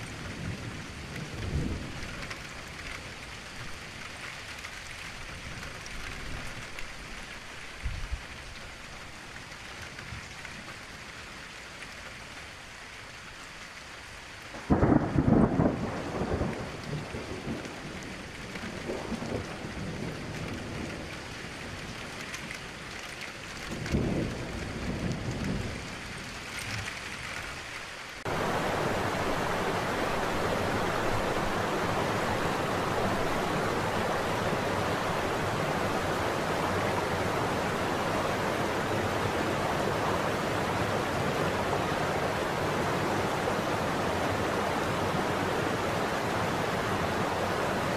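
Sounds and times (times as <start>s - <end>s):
low rumbles of thunder: 0.0s - 2.7s, 14.6s - 22.2s, 23.7s - 26.4s
steady rain falling: 0.0s - 47.9s
large waterfall rushing: 28.1s - 47.9s.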